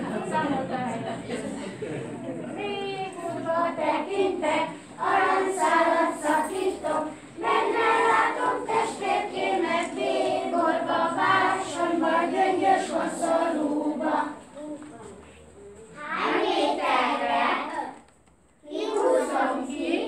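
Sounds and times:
children singing together: 0:02.4 - 0:14.6, 0:16.0 - 0:18.0, 0:18.6 - 0:20.0.

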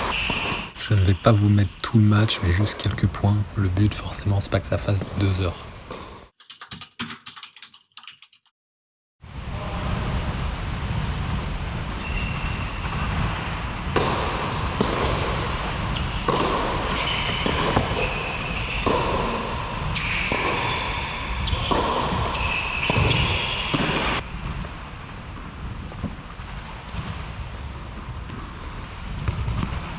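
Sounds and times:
steady low rumble: 0:09.2 - 0:12.0
tennis ball bouncing: 0:13.9 - 0:18.0.

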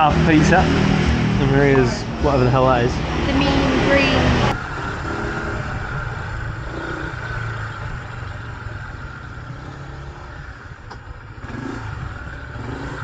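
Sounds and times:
traffic engine rumble: 0:00.0 - 0:13.0.

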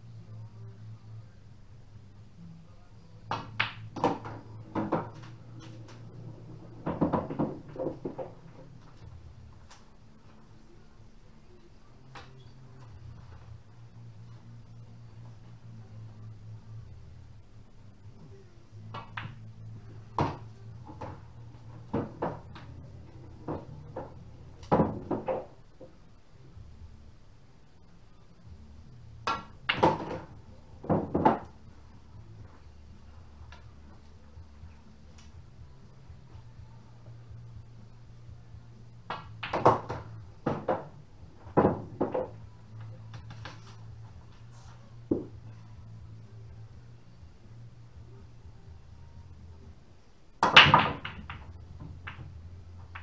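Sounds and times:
low steady hum: 0:00.0 - 0:53.0
pool balls clicking: 0:03.3 - 0:09.8, 0:18.8 - 0:25.9, 0:29.2 - 0:31.6, 0:39.0 - 0:43.8, 0:50.4 - 0:53.0
ball rolling through table: 0:03.4 - 0:09.2.

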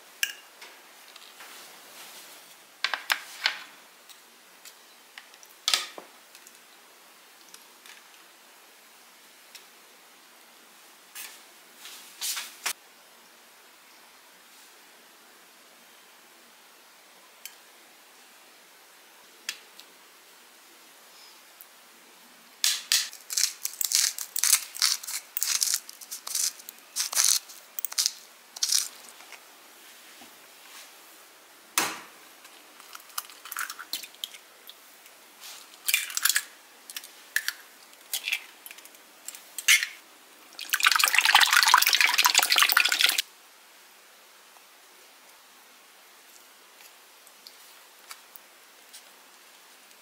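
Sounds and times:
pepper mill grinding: 0:23.1 - 0:29.1
eggs beaten in glass bowl: 0:40.6 - 0:43.2.

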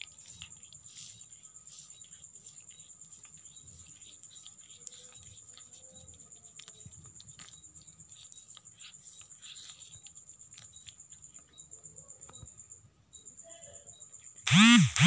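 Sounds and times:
kitten licking fur: 0:00.0 - 0:12.4.

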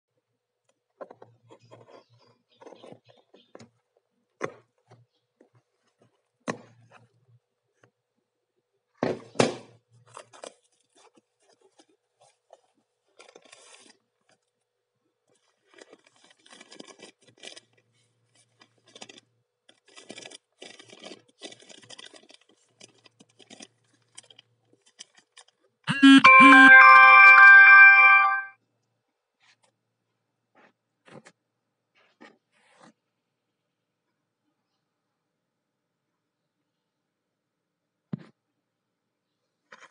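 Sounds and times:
ringing chime jingle: 0:25.9 - 0:28.5.

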